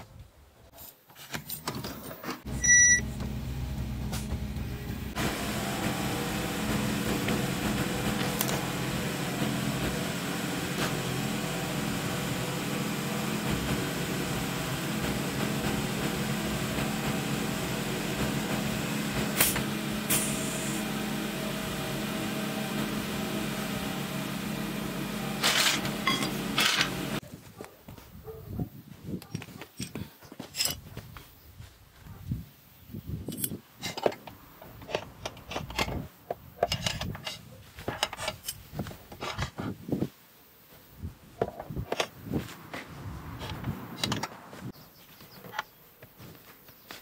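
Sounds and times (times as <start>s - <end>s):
compressor motor hum: 2.5s - 27.2s.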